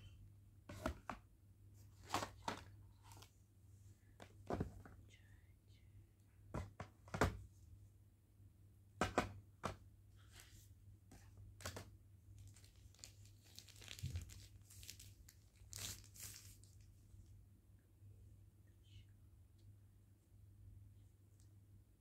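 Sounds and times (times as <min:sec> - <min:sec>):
plastic film crinkling: 0:12.4 - 0:16.9.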